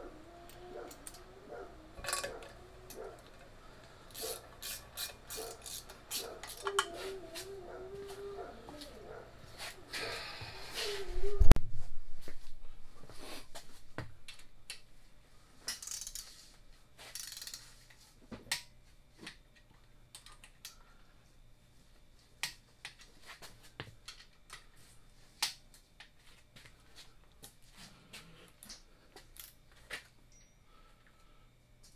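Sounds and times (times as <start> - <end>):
wrench clicking on metal bolts: 17.2 - 17.6.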